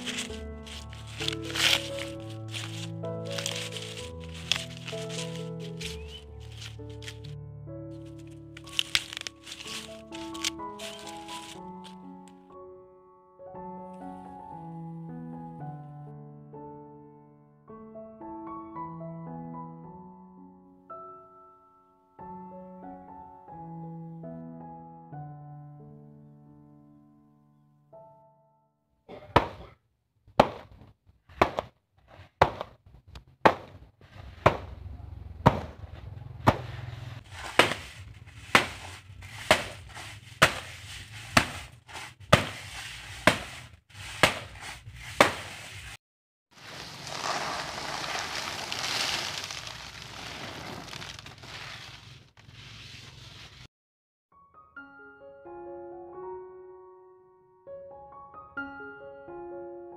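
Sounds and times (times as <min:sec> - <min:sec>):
corn kernels pouring into basket: 0:00.0 - 0:07.2, 0:08.6 - 0:12.0, 0:46.6 - 0:52.2
sack of corn being beaten: 0:29.1 - 0:29.7, 0:30.4 - 0:30.8, 0:31.4 - 0:31.7, 0:32.4 - 0:32.8, 0:33.4 - 0:33.8, 0:34.4 - 0:34.7, 0:37.3 - 0:45.6, 0:46.6 - 0:51.4.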